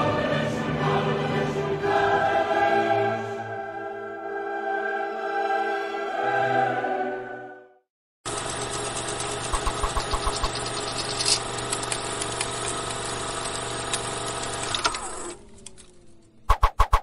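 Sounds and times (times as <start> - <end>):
film projector whirring and clattering: 8.3 - 16.1.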